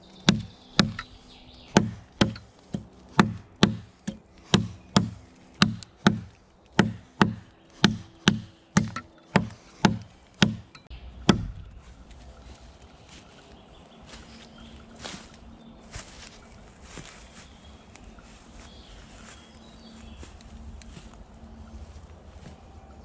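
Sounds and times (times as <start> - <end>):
axe chopping into log: 1.7 - 11.6.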